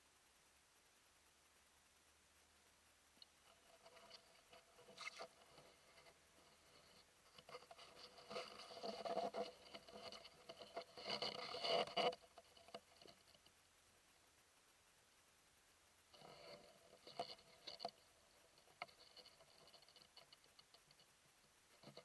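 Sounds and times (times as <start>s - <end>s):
close rustling and scraping: 3.3s - 13.5s, 16.1s - 22.0s.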